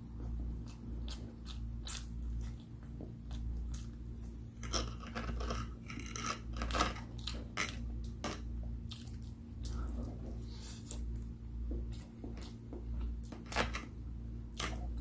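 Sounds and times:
low electrical hum: 0:00.0 - 0:15.0
mouth chewing wet clicks: 0:00.6 - 0:04.4.

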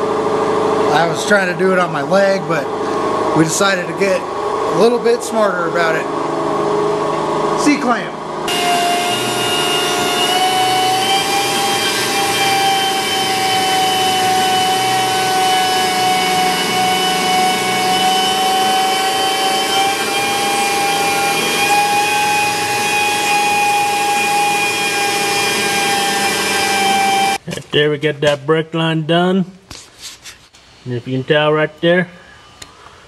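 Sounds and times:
pneumatic die grinder whining: 0:08.5 - 0:27.4.

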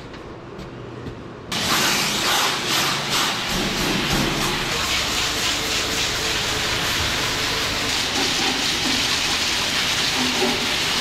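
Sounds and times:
hose spraying water on concrete: 0:01.6 - 0:11.0.

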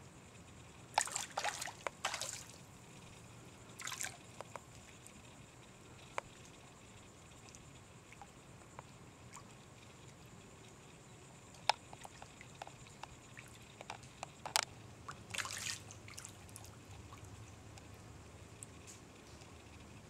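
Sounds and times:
water drips: 0:01.0 - 0:02.5
fish splashing in water: 0:01.0 - 0:02.6, 0:03.8 - 0:04.2, 0:15.1 - 0:17.2.

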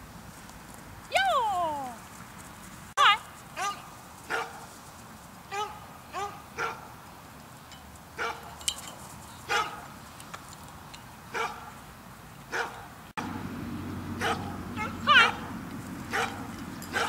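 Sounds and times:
dog barking: 0:03.6 - 0:04.6, 0:05.5 - 0:06.9, 0:08.2 - 0:08.5, 0:09.5 - 0:09.8, 0:11.3 - 0:11.8, 0:12.5 - 0:12.9, 0:14.2 - 0:15.4, 0:16.1 - 0:17.0.

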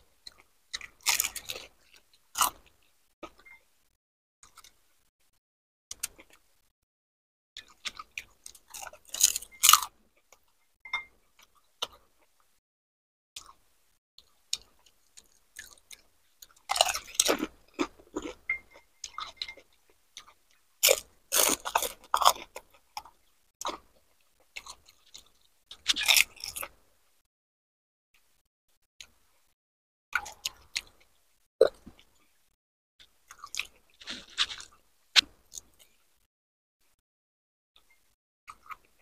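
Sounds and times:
crunchy food chewing: 0:00.2 - 0:03.6, 0:04.4 - 0:04.8, 0:07.6 - 0:10.5, 0:14.2 - 0:26.8, 0:30.2 - 0:32.4, 0:33.0 - 0:36.1.

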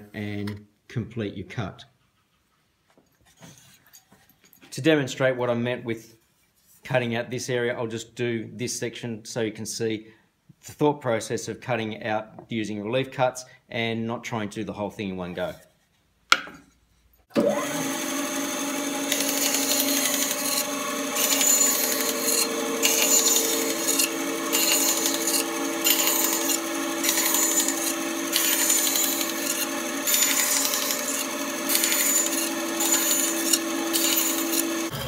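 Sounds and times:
bandsaw motor hum: 0:17.3 - 0:35.0
saw rasping through wood: 0:17.4 - 0:35.0.

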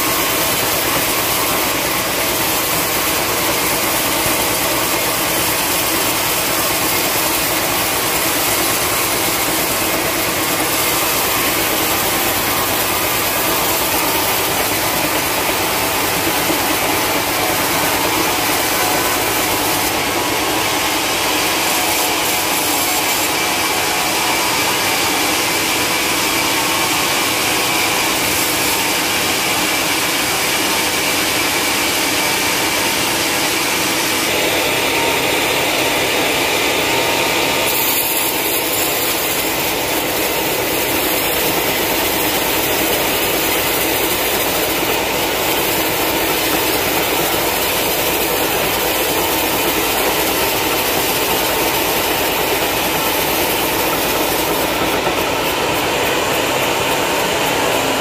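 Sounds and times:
band saw cutting log: 0:00.0 - 0:58.0.

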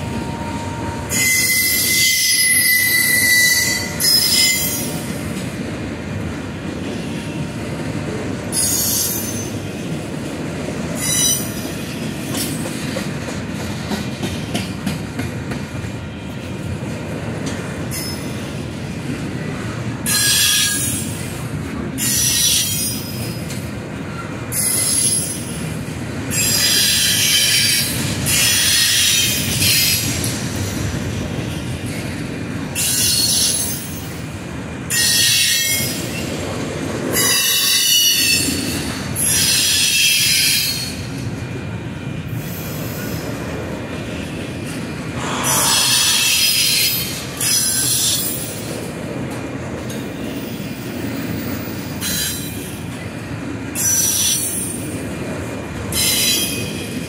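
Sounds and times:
high-pitched wheel squeal: 0:00.1 - 0:04.9
freight cars rumbling past: 0:43.5 - 0:49.7.

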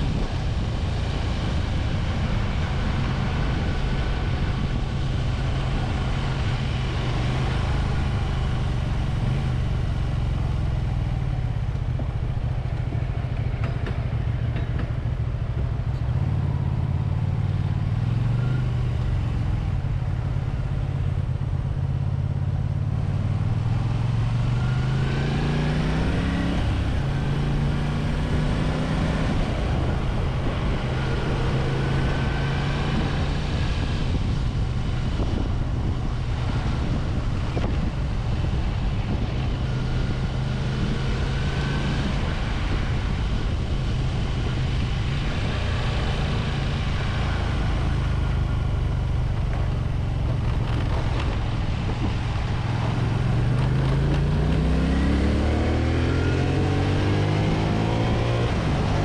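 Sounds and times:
motorcycle engine revving: 0:22.8 - 0:59.0.

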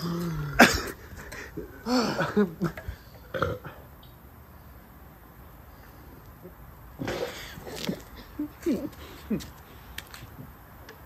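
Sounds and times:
man belching: 0:00.0 - 0:01.0, 0:01.8 - 0:03.9.

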